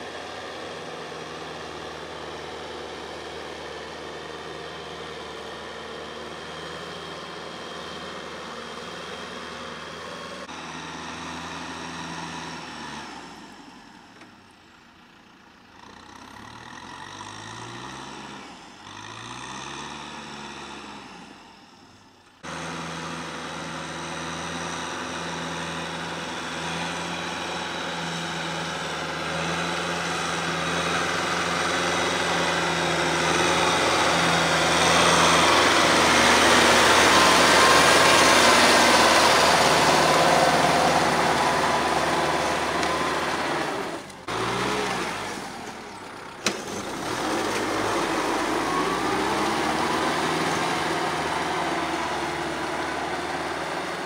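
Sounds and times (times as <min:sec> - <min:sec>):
tractor diesel engine running: 0:00.0 - 0:18.9, 0:21.4 - 0:54.0.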